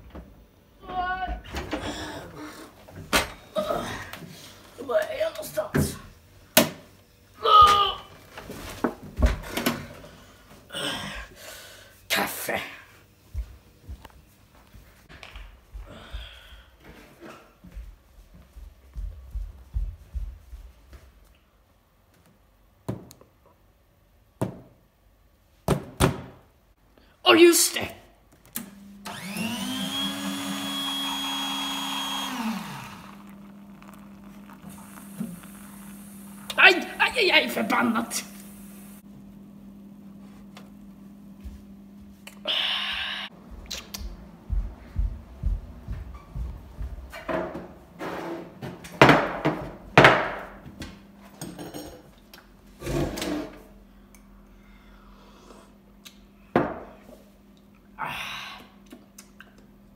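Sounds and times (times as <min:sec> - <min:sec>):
coffee machine motor whirring: 0:29.0 - 0:39.0
coffee running into mug: 0:29.7 - 0:37.6.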